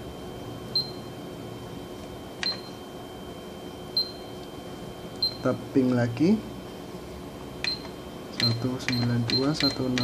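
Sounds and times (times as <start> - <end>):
steady background hum: 0.0 - 10.0
short high key beeps: 0.7 - 1.1, 2.4 - 2.7, 4.0 - 4.3, 5.2 - 5.5.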